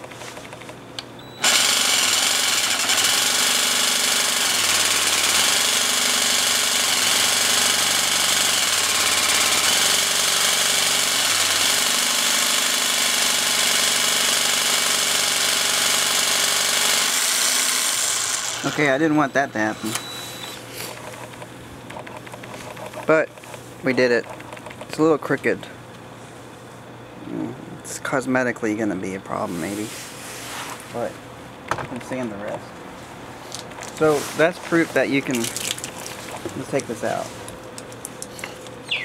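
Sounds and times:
jigsaw cutting tile: 1.4 - 19.0.

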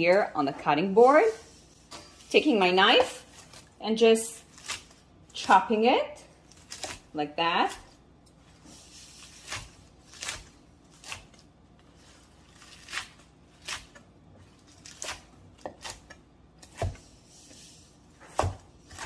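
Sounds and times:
knife chopping on wooden board: 14.9 - 17.1, 18.2 - 19.0.

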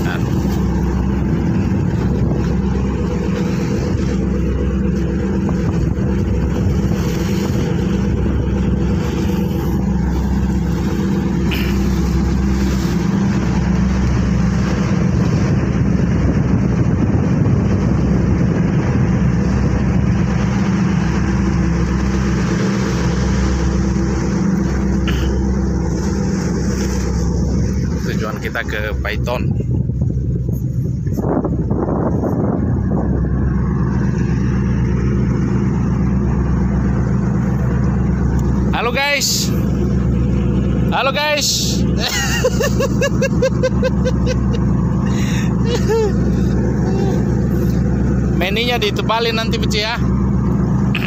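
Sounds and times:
diesel engine droning: 0.0 - 51.0
water rushing along hull: 0.0 - 51.0
wind rushing: 29.3 - 36.0.

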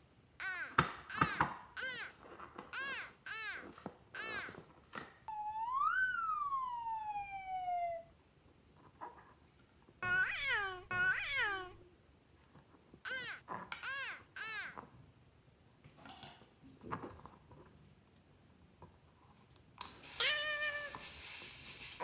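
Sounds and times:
cartoon high sliding call: 1.3 - 2.2, 4.2 - 4.6, 5.3 - 8.1, 10.0 - 11.8, 13.1 - 14.8, 20.2 - 21.0
short meow-like calls: 10.0 - 11.8, 20.2 - 21.0.

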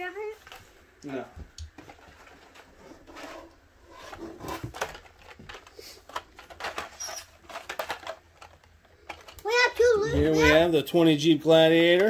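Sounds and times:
plastic and cardboard clicks and rustles: 1.5 - 10.0.

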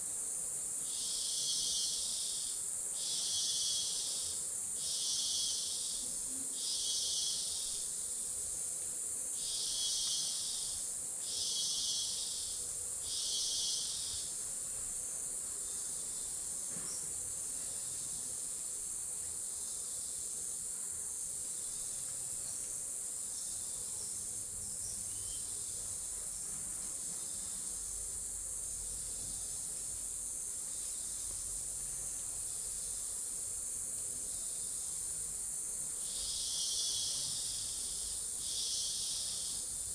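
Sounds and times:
insect chorus drone: 0.0 - 39.9
pulsing insect call: 0.7 - 8.6, 9.3 - 14.6, 27.1 - 39.9.

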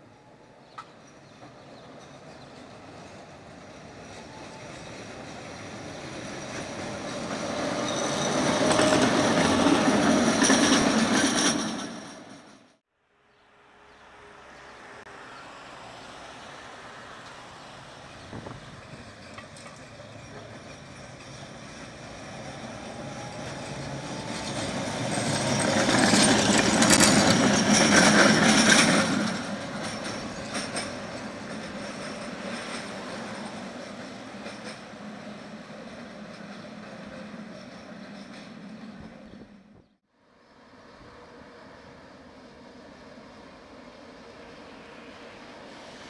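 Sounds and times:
tram passing on track: 0.0 - 12.9, 13.5 - 46.0
wheels clicking over rail joints: 18.2 - 39.3.

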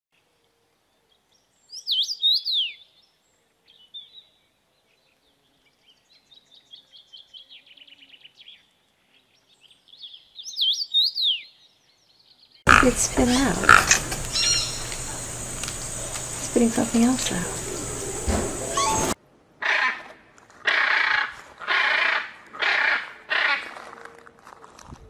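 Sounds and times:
small birds chirping: 0.9 - 19.2.

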